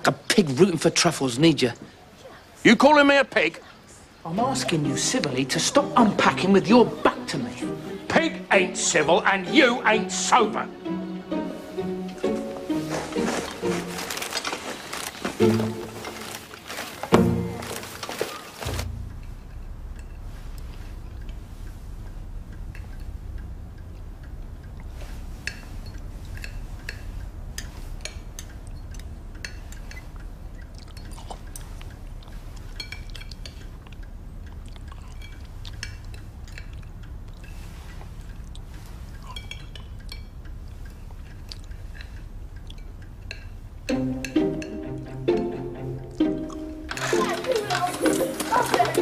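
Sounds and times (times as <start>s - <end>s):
low steady hum: 3.6s - 49.0s
music: 4.3s - 14.4s, 15.4s - 16.5s, 17.1s - 18.1s, 43.9s - 49.0s
chewing noises: 12.7s - 19.0s, 22.4s - 43.8s, 46.0s - 49.0s
cutlery clinking on plates: 30.8s - 33.7s, 39.2s - 40.4s.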